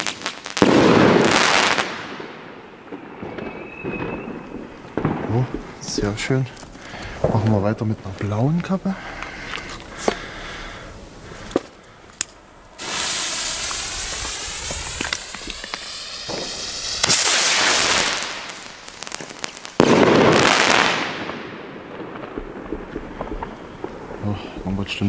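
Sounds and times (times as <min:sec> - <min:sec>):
firework rocket launching hiss: 0:00.0 - 0:02.6, 0:09.2 - 0:24.6
firework crackling stars: 0:00.0 - 0:25.0.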